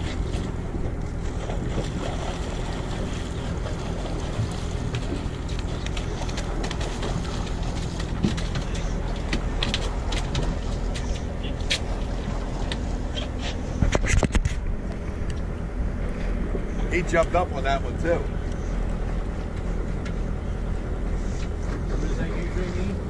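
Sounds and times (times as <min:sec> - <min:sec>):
boat engine idling: 0:00.0 - 0:23.0.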